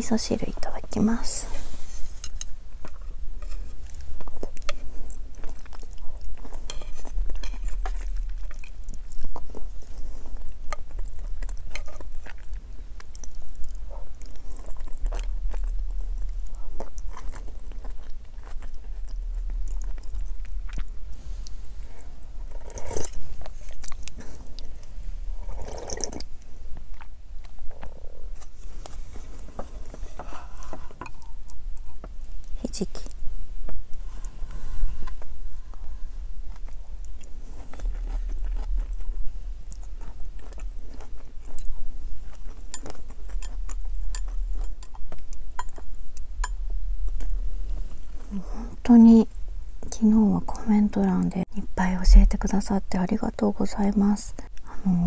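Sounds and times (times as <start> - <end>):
person chewing: 2.0 - 32.6, 34.0 - 48.7
person sipping soup: 18.4 - 26.4
wet mouth noises: 25.4 - 28.6.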